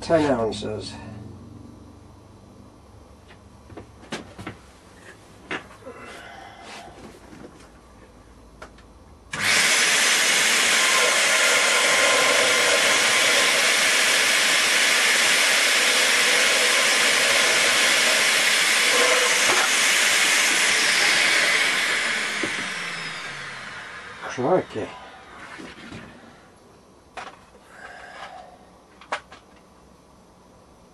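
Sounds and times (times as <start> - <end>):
vacuum cleaner winding down whine: 9.3 - 26.4
vacuum cleaner running: 9.3 - 26.5.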